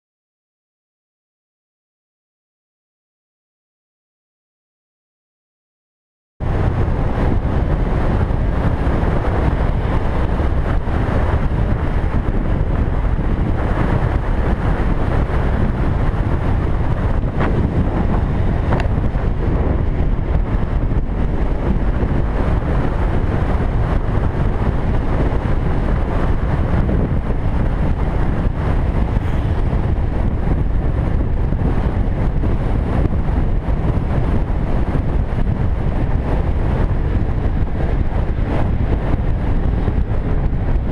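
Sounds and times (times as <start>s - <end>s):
motorcycle engine: 6.4s - 40.9s
road noise: 6.4s - 40.9s
wind buffeting microphone: 6.4s - 40.9s.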